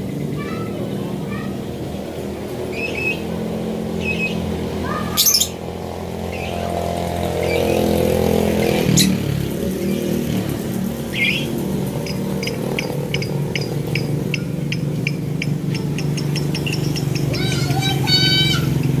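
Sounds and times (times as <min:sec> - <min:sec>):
lovebirds chirping: 0:02.7 - 0:03.3, 0:03.9 - 0:08.1, 0:08.8 - 0:19.0
shrill bird screech: 0:05.1 - 0:05.6.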